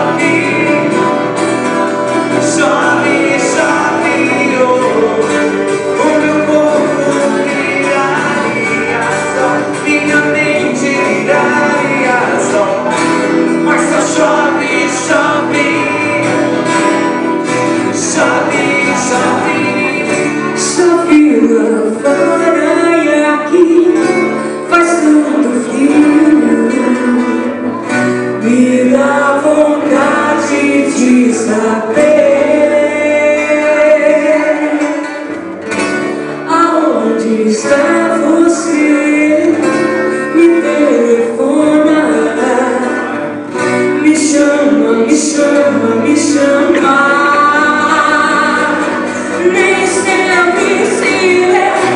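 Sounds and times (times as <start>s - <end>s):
acoustic guitars strumming: 0.0s - 51.9s
woman singing into microphone: 28.4s - 35.1s, 44.0s - 51.9s.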